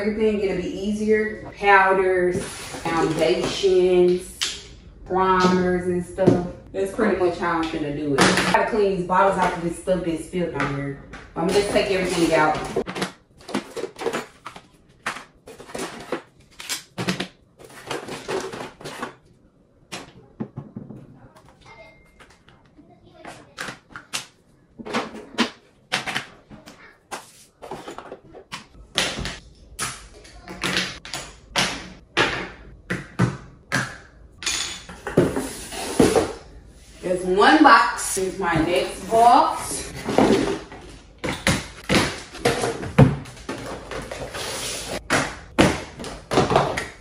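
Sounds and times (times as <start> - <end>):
rummaging: 11.5 - 19.2, 24.8 - 28.5.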